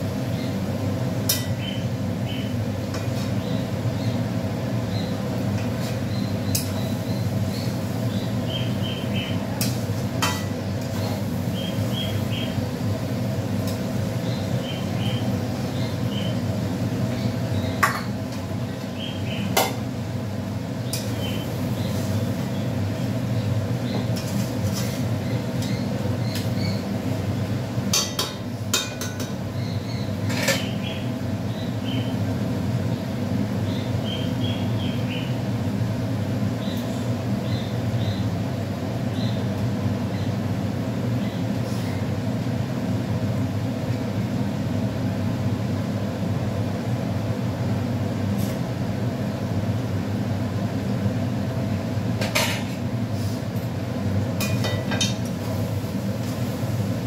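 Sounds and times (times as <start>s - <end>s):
onions cooking in a pan: 53.2s - 57.0s.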